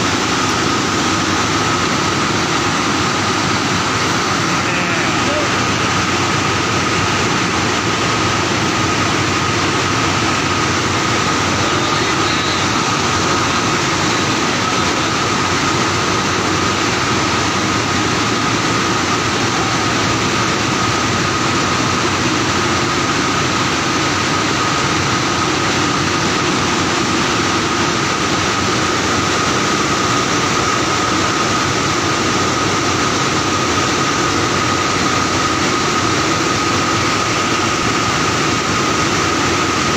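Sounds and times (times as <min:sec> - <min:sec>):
machine running with whine: 0:00.0 - 0:39.9.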